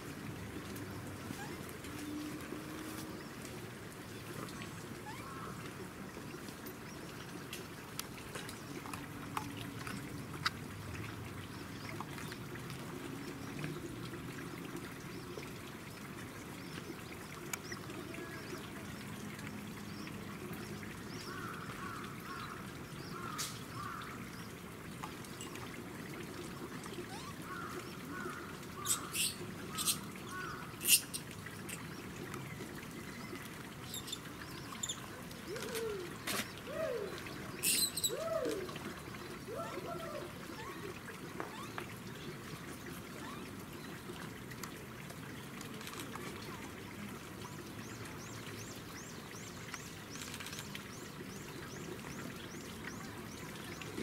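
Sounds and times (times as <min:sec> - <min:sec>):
short chirping calls: 0:28.8 - 0:30.0, 0:30.8 - 0:31.2, 0:37.6 - 0:38.2.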